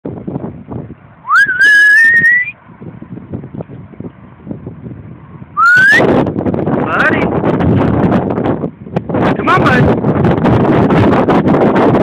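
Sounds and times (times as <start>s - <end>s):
person whistling: 1.3s - 2.5s, 5.6s - 6.0s.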